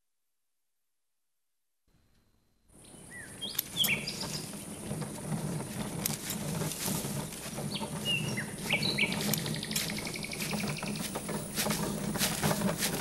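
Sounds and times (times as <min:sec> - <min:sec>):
birds chirping: 0:02.8 - 0:13.0.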